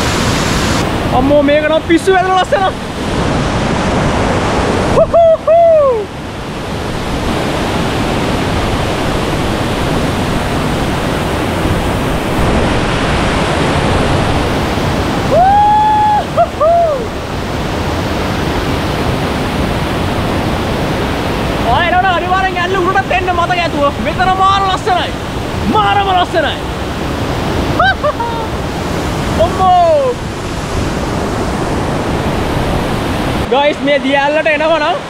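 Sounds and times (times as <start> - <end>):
waterfall rushing: 0.0 - 35.0
man calling out: 29.3 - 30.2.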